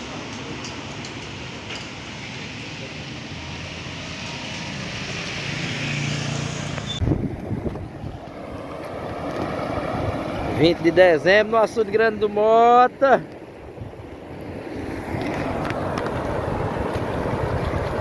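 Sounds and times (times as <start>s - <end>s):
traffic hiss on wet street: 0.0s - 18.0s
vehicle engine passing close: 1.4s - 11.9s, 13.9s - 18.0s
wind buffeting microphone: 7.0s - 12.5s, 13.4s - 18.0s.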